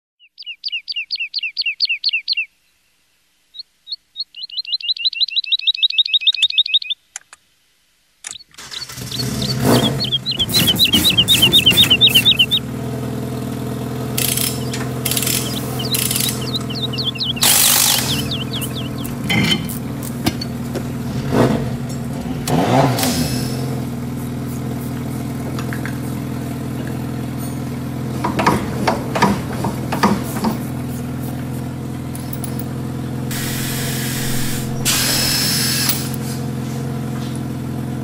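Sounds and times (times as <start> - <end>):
songbird trills: 0.2 - 2.9, 3.5 - 7.1, 8.3 - 12.7, 14.2 - 19.8
engine starting and running: 8.4 - 38.0.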